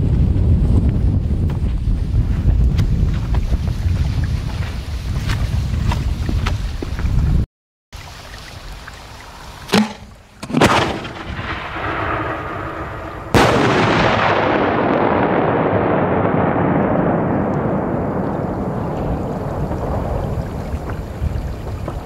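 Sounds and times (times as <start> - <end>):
loud firework bangs: 10.5 - 21.0.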